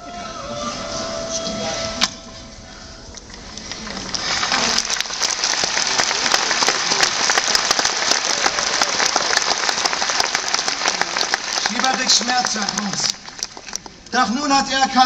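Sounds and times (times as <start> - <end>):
audience applauding: 3.4 - 14.1.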